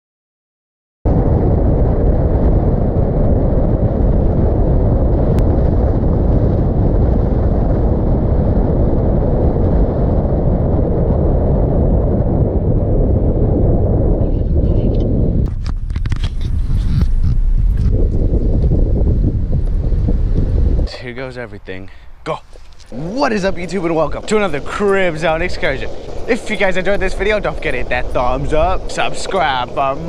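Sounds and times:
wind buffeting microphone: 1.1s - 30.0s
road noise: 15.5s - 30.0s.

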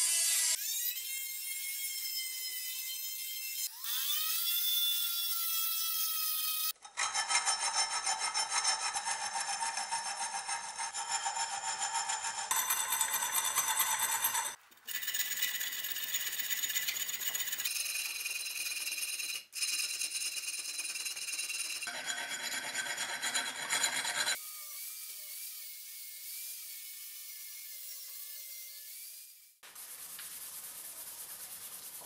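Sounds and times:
rotary tool whining on steel: 0.0s - 28.5s
hand file rasping on metal: 6.8s - 24.4s.

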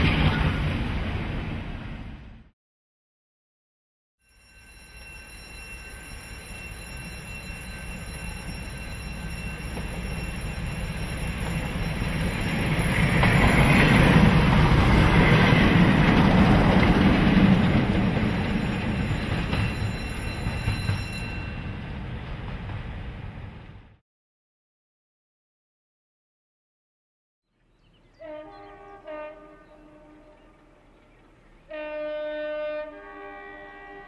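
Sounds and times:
diesel locomotive engines: 4.4s - 23.9s, 28.2s - 34.0s.

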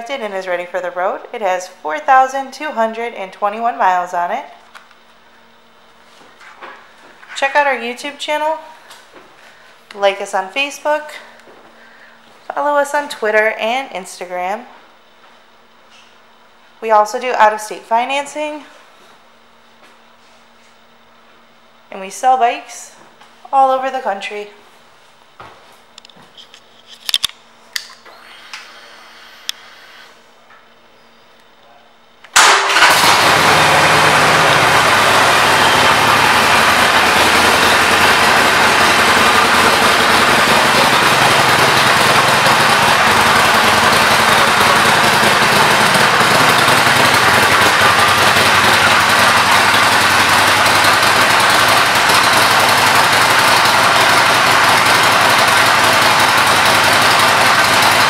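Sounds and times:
motorcycle engine starting and idling: 32.3s - 58.0s.

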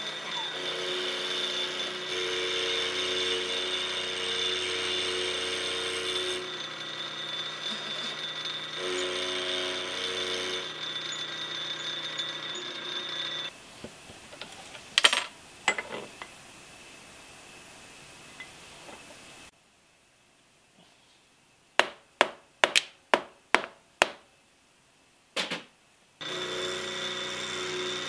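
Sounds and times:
milling machine cutting metal: 0.0s - 13.5s, 26.2s - 28.0s.

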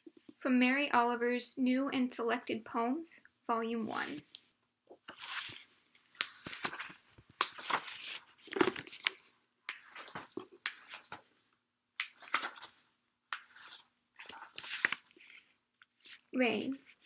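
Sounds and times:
book pages leafed through: 5.1s - 11.3s, 12.0s - 17.0s.

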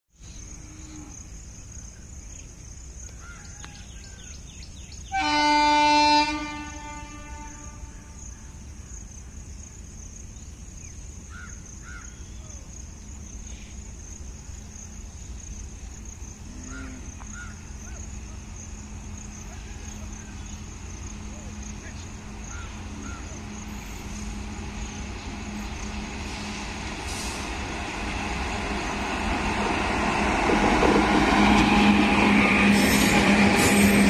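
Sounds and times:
low train rumble: 0.2s - 34.0s
locomotive horn blast: 5.1s - 8.2s.

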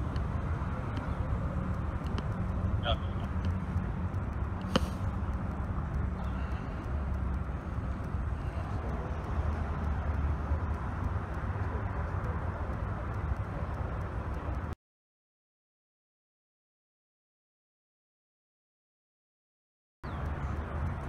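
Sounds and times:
traffic rumble: 0.0s - 14.8s, 20.0s - 21.0s.

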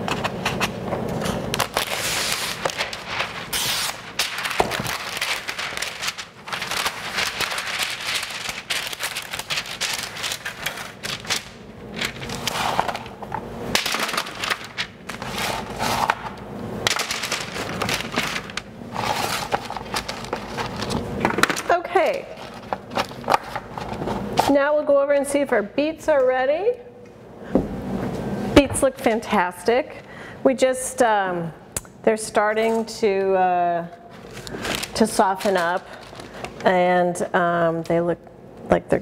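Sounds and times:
parchment paper crinkling: 1.2s - 24.3s, 34.1s - 36.8s.

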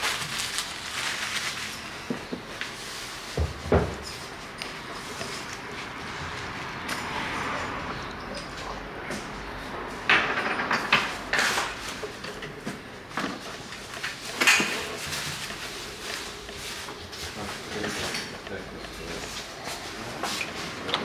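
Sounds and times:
plastic wrap crinkling: 0.0s - 3.3s.

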